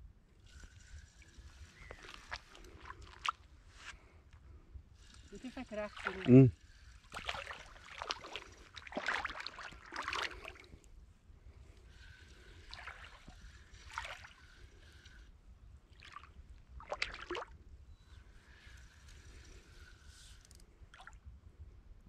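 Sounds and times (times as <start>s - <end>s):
shallow water sloshing and splashing: 0.4s - 21.3s.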